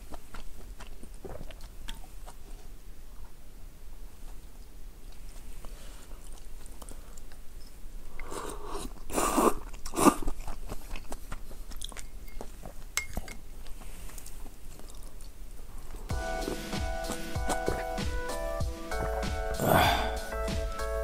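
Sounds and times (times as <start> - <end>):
chewing: 0.0 - 21.0
mouth clicks: 8.0 - 13.3
person slurping noodles: 8.2 - 10.6, 16.2 - 21.0.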